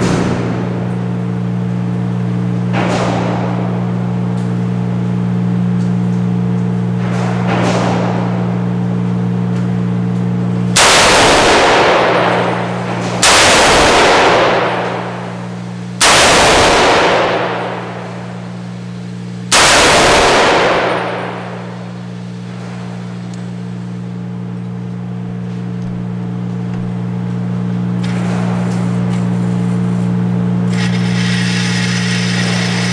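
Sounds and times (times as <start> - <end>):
steady low hum: 0.0 - 32.9
gunshots with echoing tail: 10.8 - 18.7, 19.5 - 22.4.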